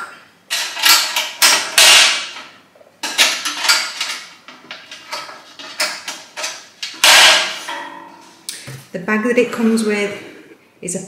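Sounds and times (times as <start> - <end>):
metal grill plate clattering: 3.0 - 8.4.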